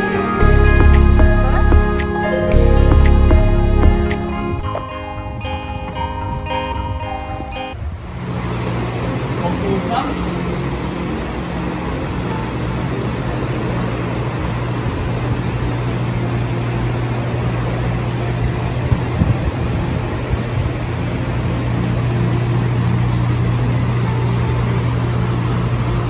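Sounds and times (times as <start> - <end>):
background music with held notes: 0.0 - 7.8
ventilation hum and air rush: 7.8 - 26.0.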